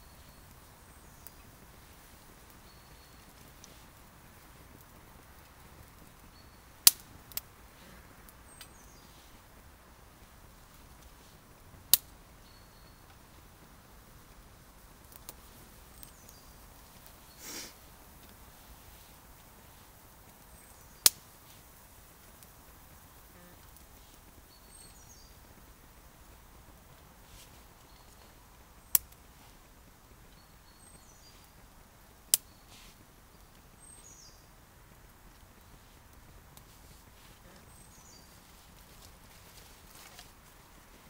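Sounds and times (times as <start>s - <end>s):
twigs cracking in fire: 0.0s - 41.0s
faint bird chirps: 2.4s - 3.8s, 12.4s - 13.2s, 23.3s - 25.5s, 27.4s - 29.0s, 30.2s - 31.6s, 32.4s - 34.6s.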